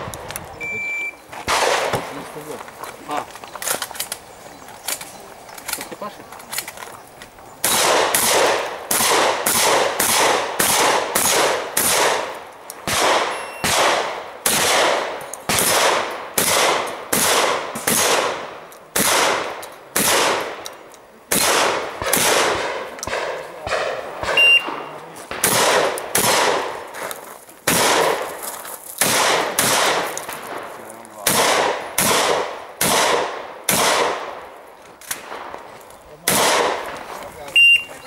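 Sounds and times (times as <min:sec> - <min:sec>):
brief high beep: 0:00.6 - 0:01.2, 0:13.3 - 0:13.6, 0:24.4 - 0:24.7, 0:37.6 - 0:38.0
shotgun shots echoing: 0:01.4 - 0:02.5, 0:07.6 - 0:20.7, 0:21.3 - 0:27.0, 0:27.6 - 0:28.4, 0:29.0 - 0:37.0.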